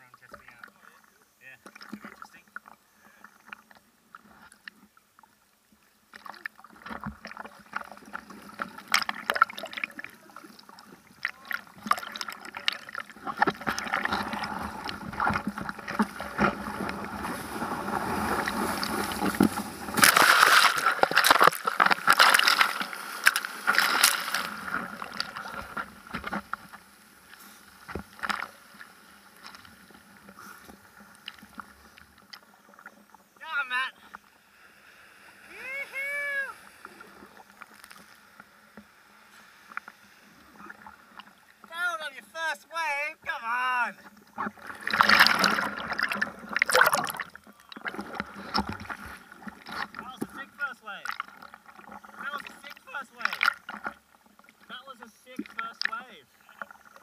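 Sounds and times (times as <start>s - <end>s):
seawater sloshing and splashing: 6.1s - 33.1s, 44.1s - 57.0s.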